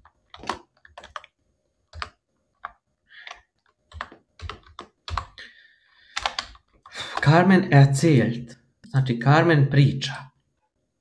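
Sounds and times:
keyboard typing: 0:00.0 - 0:07.5.

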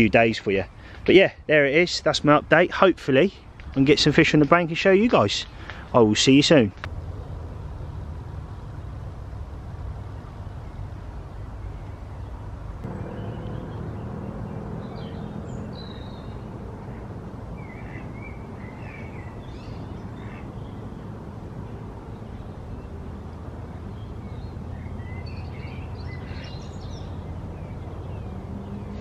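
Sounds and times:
low rumble: 0:12.8 - 0:17.8.

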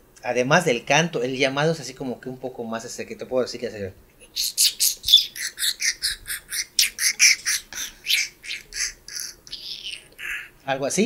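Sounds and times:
man imitating bird call: 0:04.2 - 0:10.6.

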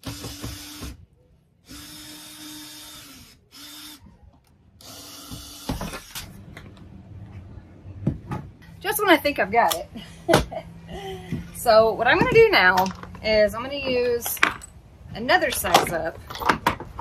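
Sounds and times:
cordless drill whining: 0:00.0 - 0:01.0, 0:01.6 - 0:04.1, 0:04.8 - 0:06.3.

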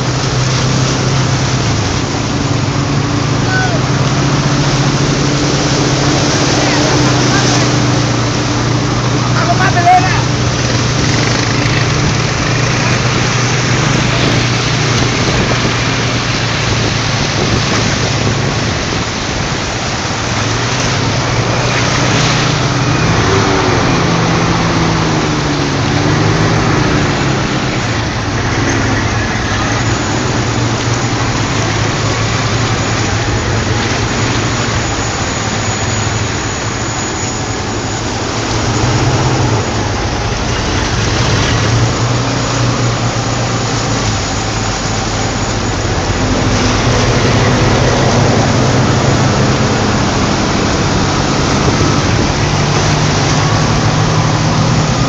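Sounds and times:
road noise: 0:00.0 - 0:55.0
vehicle engine running: 0:00.0 - 0:55.0
wind noise: 0:10.4 - 0:37.0, 0:37.6 - 0:55.0.

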